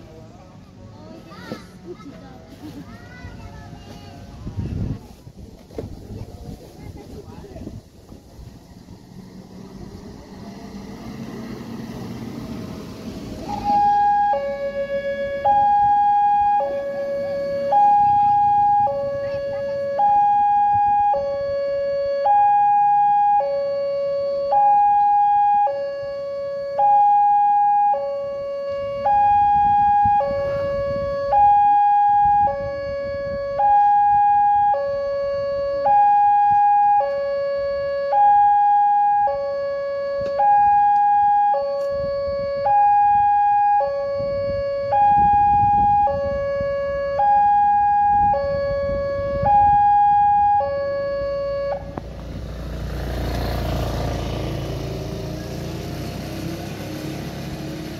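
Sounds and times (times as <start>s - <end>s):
two-tone crossing alarm: 13.4s - 52.0s.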